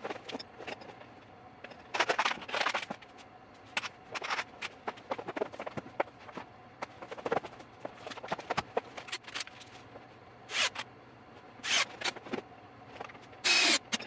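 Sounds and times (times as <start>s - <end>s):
cordless drill driving screws: 13.5s - 13.8s.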